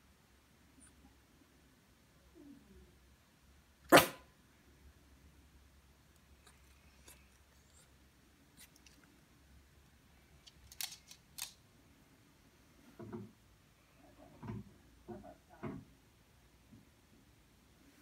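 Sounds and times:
dog claws clicking on wooden floor: 10.4s - 11.6s.

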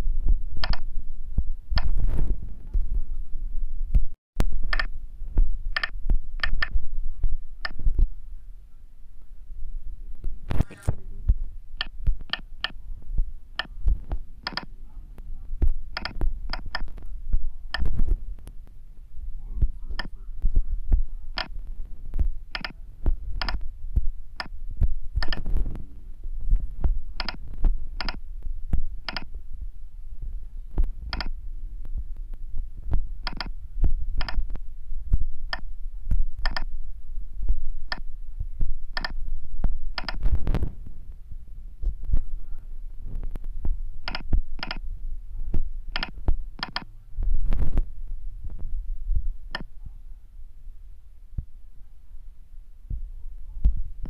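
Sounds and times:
steady low rumble: 0.0s - 54.0s
phone keypad clicks: 4.7s - 4.9s, 14.4s - 14.7s, 22.5s - 22.8s, 36.4s - 36.7s.

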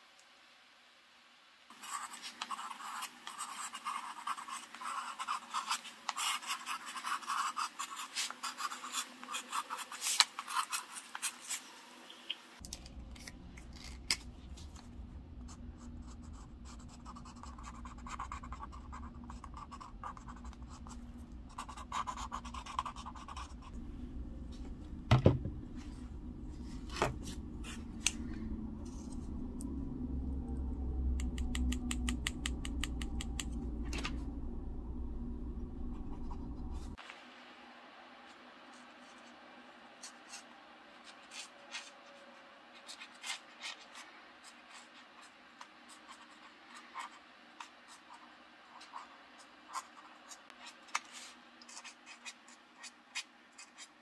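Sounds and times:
pen scratching on paper: 1.7s - 11.6s, 15.5s - 23.7s, 42.8s - 54.0s
low steady hum: 12.5s - 53.8s.

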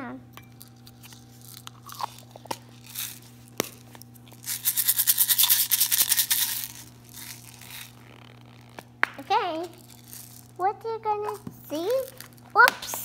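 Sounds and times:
fast even scratching: 1.0s - 10.6s.

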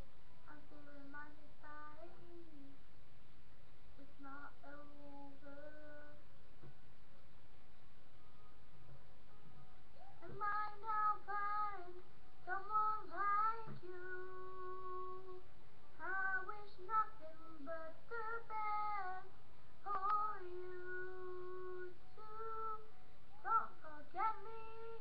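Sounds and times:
boy singing unaccompanied: 4.0s - 6.2s, 10.0s - 15.4s, 16.0s - 25.0s.

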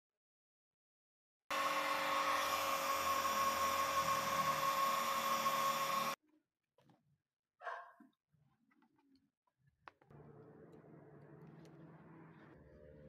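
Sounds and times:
small electric motor whirring: 1.5s - 6.2s.

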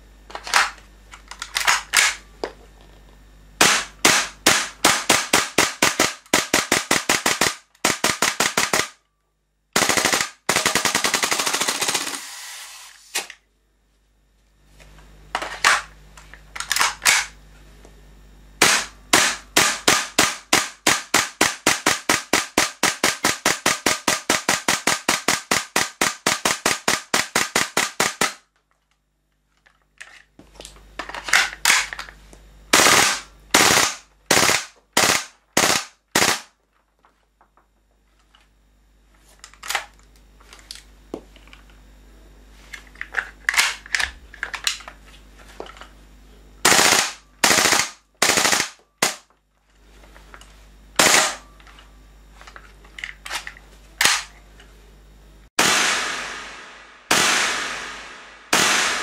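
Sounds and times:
airsoft gun rapid firing: 3.6s - 9.0s, 9.8s - 12.6s, 18.6s - 28.4s, 32.7s - 36.5s, 46.6s - 49.2s, 51.0s - 51.4s, 55.6s - 59.0s.

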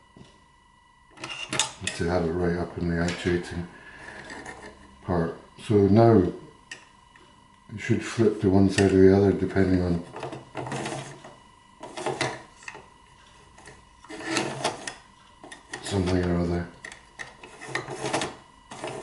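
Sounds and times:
plastic and metal rubbing and scraping: 10.0s - 12.9s, 13.5s - 16.3s, 17.2s - 19.0s.

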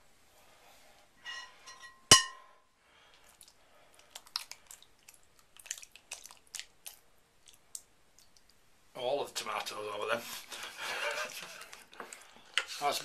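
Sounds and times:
metal taps and scrapes: 1.2s - 2.5s
loud ringing metal clang: 1.8s - 2.5s.

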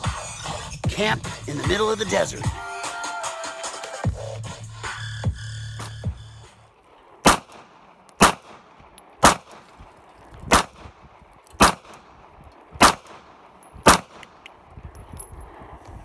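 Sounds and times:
handgun shots: 7.2s - 9.7s, 10.5s - 12.1s, 12.8s - 14.5s.

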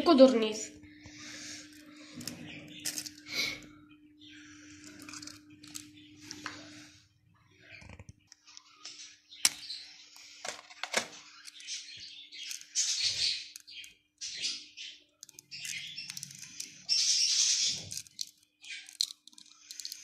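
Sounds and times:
eggshells cracking: 15.2s - 16.8s, 17.7s - 20.0s
shells rustling as pulled apart: 17.8s - 20.0s.

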